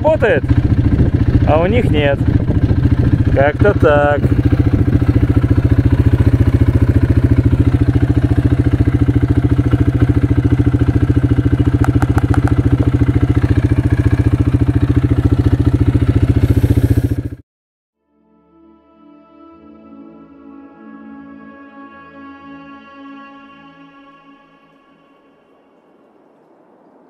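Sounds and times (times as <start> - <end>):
quad bike engine running: 0.0 - 17.4.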